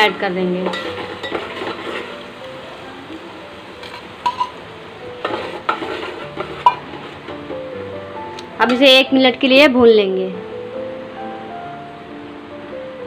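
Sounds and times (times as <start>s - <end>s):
paste sizzling in hot oil: 0.0s - 7.8s
spoon clinking against pot: 3.8s - 4.6s, 5.2s - 6.8s.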